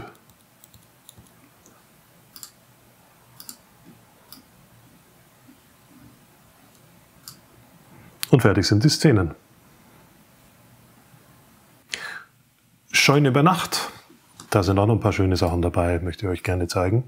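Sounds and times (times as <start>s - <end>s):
computer mouse clicks: 0.1s - 2.6s, 3.4s - 3.6s, 4.3s - 4.5s, 6.7s - 7.4s.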